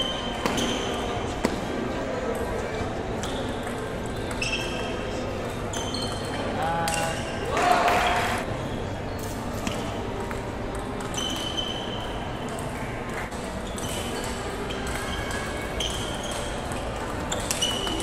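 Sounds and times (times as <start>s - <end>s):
background chatter: 0.2s - 9.0s
ping pong ball hitting bats: 3.1s - 8.0s, 9.6s - 18.0s.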